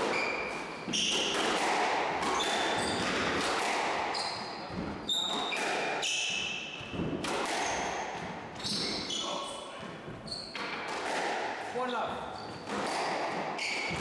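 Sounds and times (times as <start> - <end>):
shoes squeaking on wooden floor: 0.0 - 1.3, 2.3 - 3.2, 4.0 - 10.8, 11.9 - 14.0
squash ball cracking off walls: 0.0 - 8.4, 10.6 - 11.6, 12.5 - 14.0.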